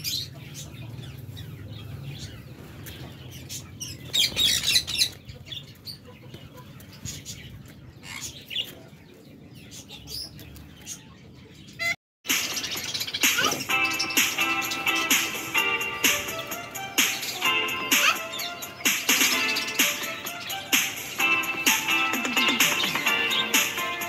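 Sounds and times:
parakeet calling: 11.8s - 24.0s.

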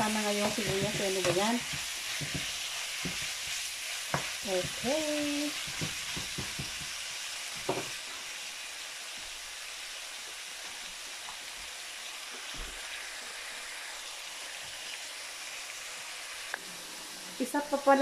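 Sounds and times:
wooden spatula knocking on pan: 0.0s - 3.4s, 4.1s - 7.0s, 7.6s - 7.9s
meat sizzling in a pan: 0.0s - 18.0s.

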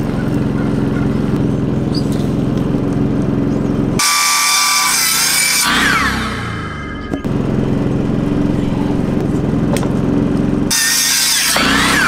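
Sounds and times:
power saw cutting wood: 4.0s - 12.0s.

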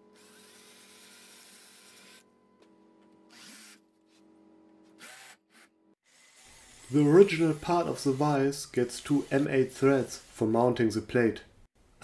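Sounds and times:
cordless drill motor whining: 3.3s - 3.8s, 5.0s - 6.9s.

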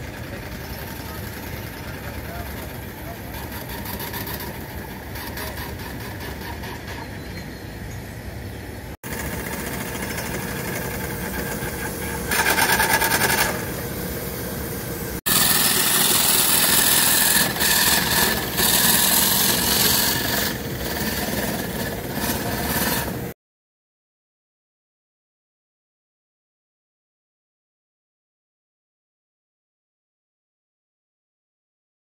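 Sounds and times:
steam engine rapid beat: 9.0s - 13.8s.

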